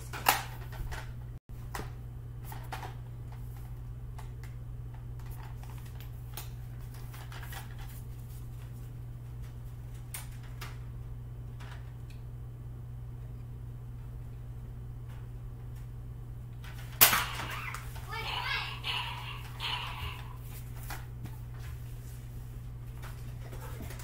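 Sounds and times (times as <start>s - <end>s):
low hum: 10.8s - 24.0s.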